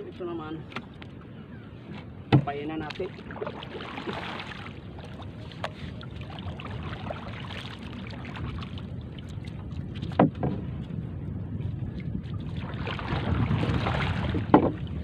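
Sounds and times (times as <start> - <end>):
water around canoe: 0.0 - 15.0
wind: 0.0 - 15.0
paddle knocking on wooden canoe: 1.9 - 3.0, 10.0 - 10.7, 14.3 - 14.9.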